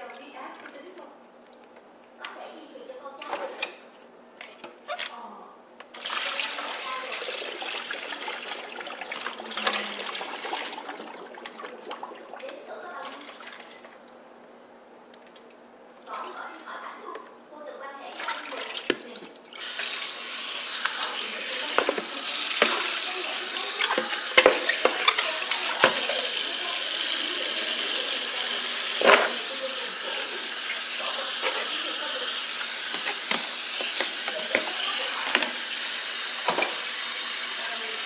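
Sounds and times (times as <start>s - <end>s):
tap water running into basin: 5.9s - 14.1s, 18.2s - 38.0s
plastic basin knocking on sink: 21.5s - 26.3s, 29.0s - 29.5s, 32.9s - 35.7s.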